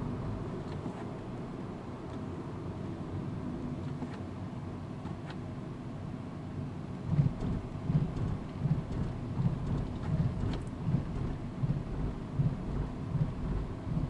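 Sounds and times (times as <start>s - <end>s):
road and wind noise in car cabin: 0.0s - 14.0s
regular low thump: 7.1s - 14.0s.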